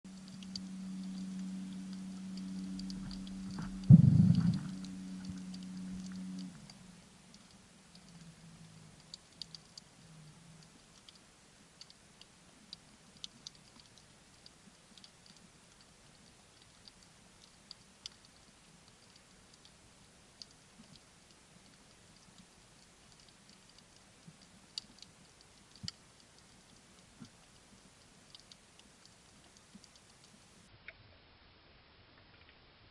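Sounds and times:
low hum: 0.1 - 11.1
underwater clicks and crackles: 0.1 - 31.0.

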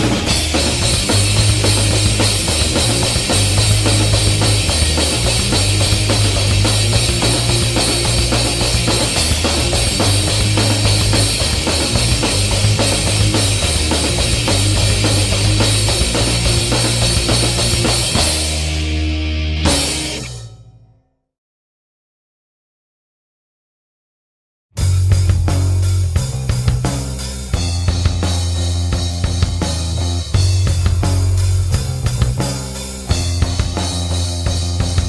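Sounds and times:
fast drum kit: 0.0 - 20.5, 24.8 - 35.0
electric guitar: 0.0 - 20.6
bass guitar: 0.0 - 21.1, 24.8 - 35.0.

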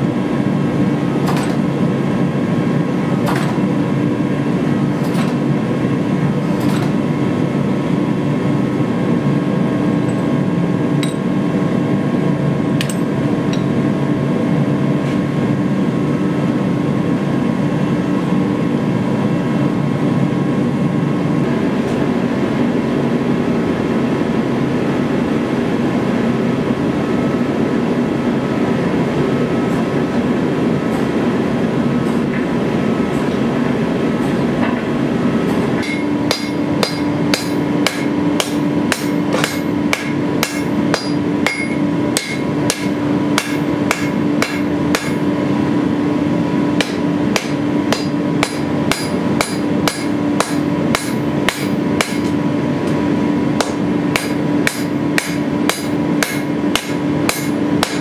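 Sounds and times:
forging machine mechanical noise: 1.0 - 7.4, 35.3 - 45.8, 46.4 - 58.0
hammer striking blade on anvil: 11.0 - 11.3, 12.8 - 13.7, 35.8 - 45.2, 46.8 - 52.4, 53.6 - 58.0.

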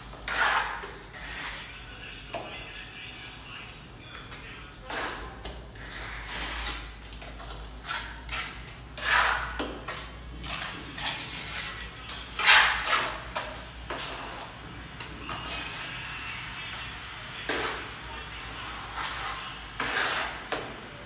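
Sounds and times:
trowel scraping: 0.2 - 1.8, 4.8 - 16.0, 17.4 - 20.7.

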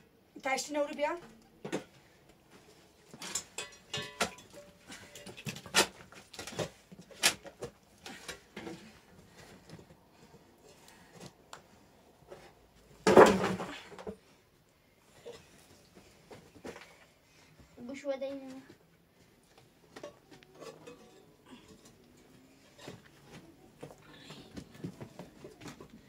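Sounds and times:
household items clattering: 3.1 - 10.3, 19.9 - 26.0.

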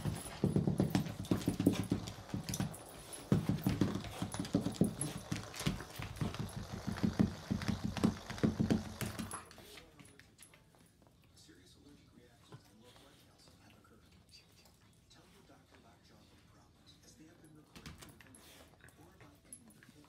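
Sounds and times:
claws clicking on hard floor: 0.0 - 9.6.

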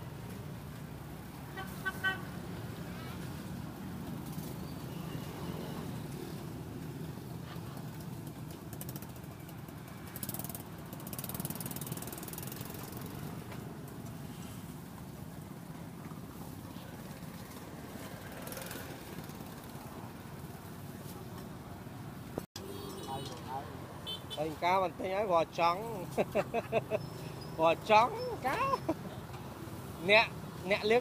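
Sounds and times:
street traffic rumble: 0.0 - 31.0
vehicle horn toot: 1.6 - 2.3, 22.6 - 23.4, 24.0 - 24.6.

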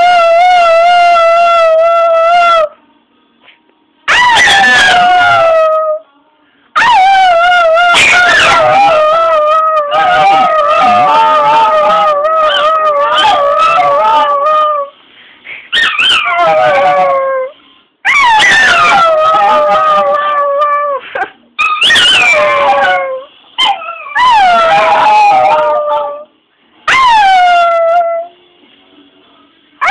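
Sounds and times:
small dog howling: 0.0 - 2.7, 4.1 - 6.0, 6.8 - 14.9, 15.8 - 17.5, 18.1 - 21.0, 21.6 - 26.3, 26.9 - 28.3.

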